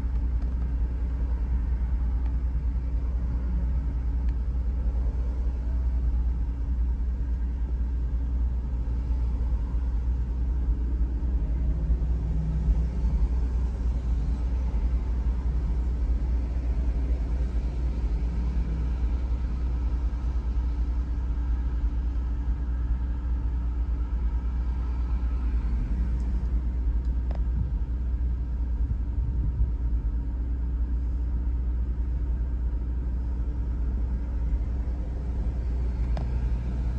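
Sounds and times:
car cabin rumble idling: 0.0 - 24.4
faint steady hum: 0.0 - 36.9.

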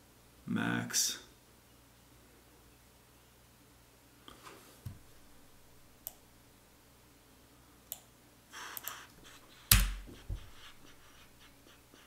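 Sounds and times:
computer mouse clicking: 8.7 - 10.2.

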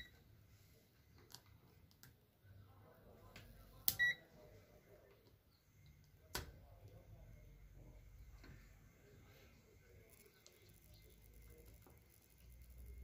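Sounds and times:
multimeter short beep: 4.0 - 4.2.

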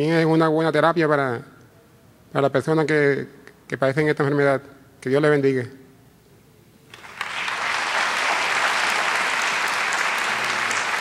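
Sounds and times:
audience applauding: 6.9 - 11.0.

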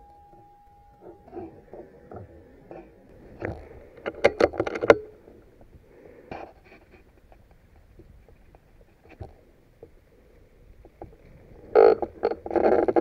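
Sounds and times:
air rifle clicks and knocks: 3.4 - 5.1.

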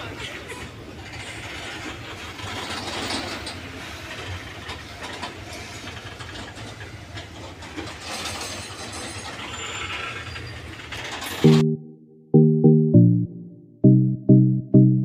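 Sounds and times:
freight train rumbling over bridge: 0.0 - 11.4
wheels clicking on rails: 0.0 - 11.4.

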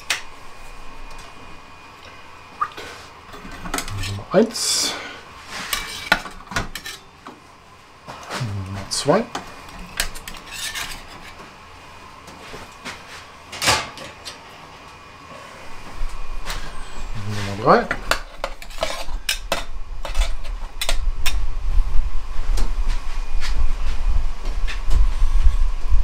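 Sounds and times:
short rising squeak: 16.6 - 17.2.

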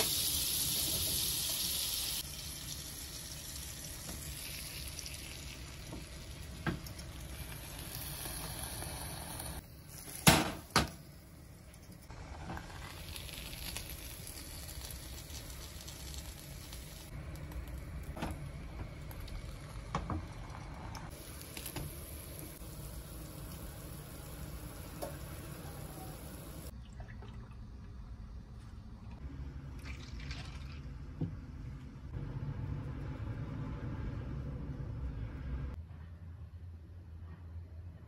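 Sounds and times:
food sizzling in a pan: 0.0 - 11.1, 12.1 - 26.7.

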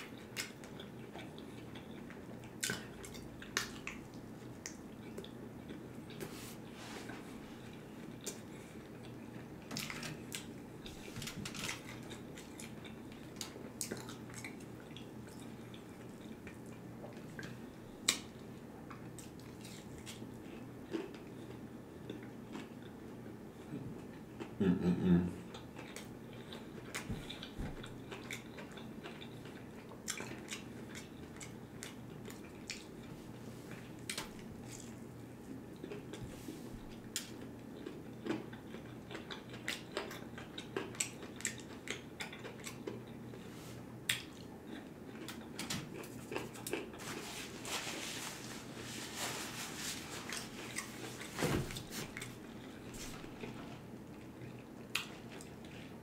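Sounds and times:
person chewing: 0.0 - 24.6, 25.5 - 56.0.

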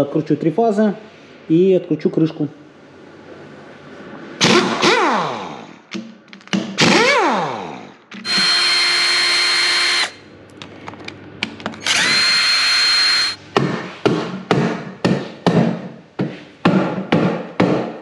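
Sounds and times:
air impact wrench whining: 8.2 - 10.2, 11.8 - 13.4
cordless drill whining: 8.2 - 10.2, 11.8 - 13.4.

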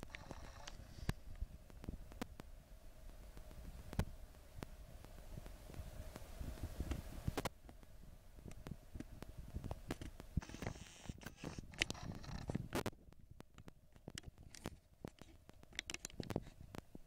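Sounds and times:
irregular clicks and knocks: 9.7 - 16.9.

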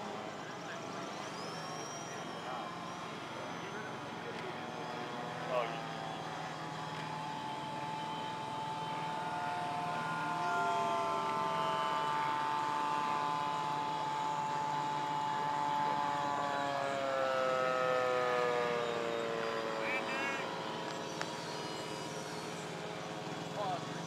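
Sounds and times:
model airplanes buzzing: 0.0 - 24.0.

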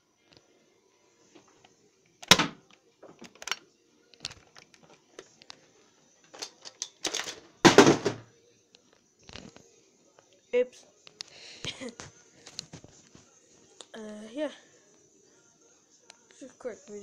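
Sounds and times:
hard plastic clicking and knocking: 2.2 - 3.6
heavy thud: 7.7 - 8.2.

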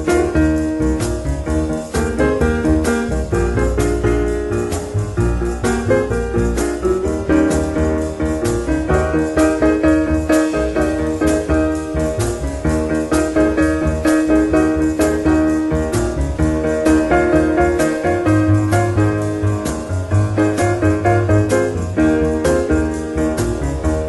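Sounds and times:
jazz piano trio: 0.0 - 24.0.

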